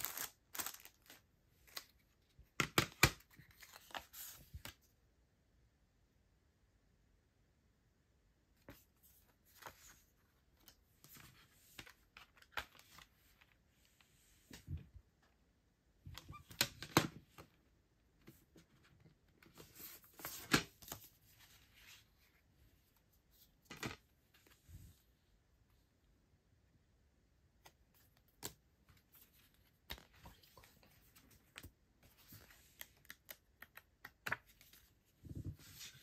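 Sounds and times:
cards and plastic rustling: 0.0s - 4.8s.

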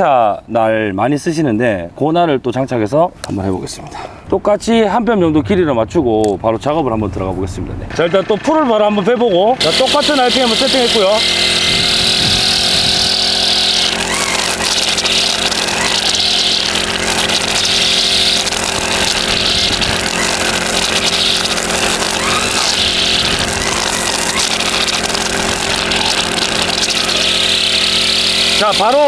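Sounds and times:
brush cutter engine running: 7.9s - 29.0s
trimmer line swishing through grass: 9.7s - 29.0s.

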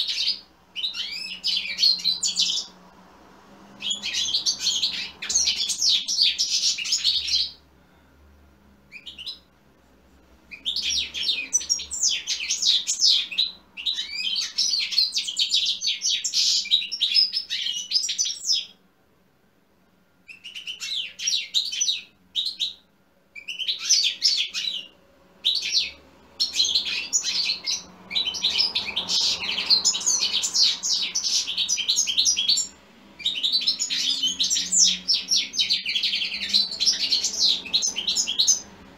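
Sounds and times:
goldfinch twittering song: 0.0s - 2.7s, 3.8s - 7.6s, 10.5s - 18.8s, 23.4s - 38.7s.

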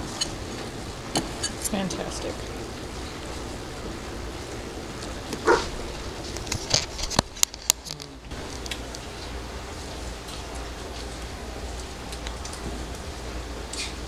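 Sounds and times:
dog barking: 5.4s - 5.8s.

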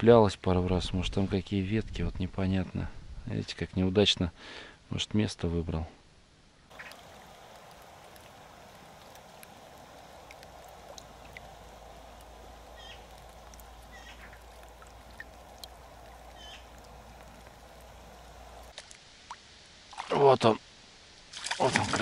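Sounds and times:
low hiss: 0.3s - 22.0s
birds chirping: 6.7s - 18.7s.

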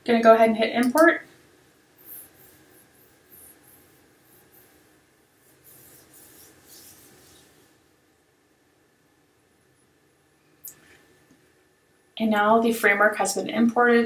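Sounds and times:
scratchy rubbing at desk: 2.0s - 7.8s.

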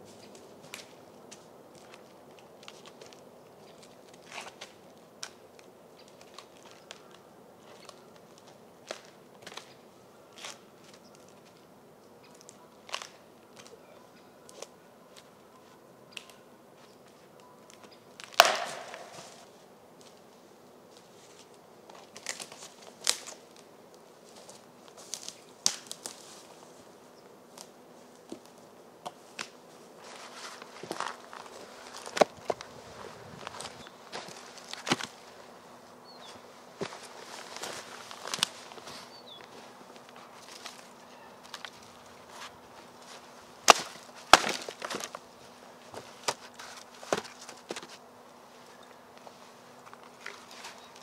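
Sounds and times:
footsteps on forest litter: 0.0s - 11.7s, 16.8s - 51.0s
twigs snapping underfoot: 0.2s - 11.6s, 12.2s - 13.8s, 16.1s - 16.4s, 17.7s - 20.2s, 20.9s - 26.8s, 27.5s - 35.3s, 36.2s - 45.3s, 49.1s - 51.0s
branches knocking on firewood pile: 18.2s - 19.5s, 21.9s - 23.4s, 24.4s - 26.5s, 27.6s - 32.7s, 33.4s - 35.2s, 36.8s - 45.3s, 45.9s - 48.0s.

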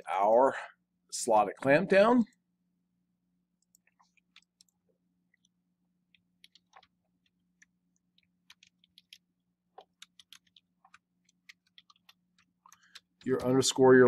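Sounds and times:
computer keyboard typing clicks: 6.4s - 7.0s, 7.6s - 9.2s, 9.8s - 13.8s.

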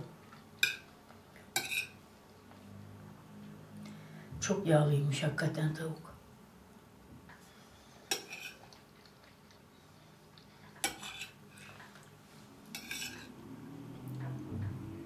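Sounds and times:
cutlery clinking on a plate: 1.6s - 2.0s, 8.1s - 8.6s, 10.8s - 11.9s, 12.7s - 13.3s.

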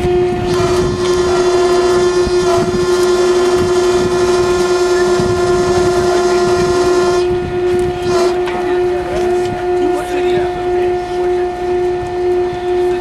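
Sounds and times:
steady machine drone: 0.0s - 13.0s.

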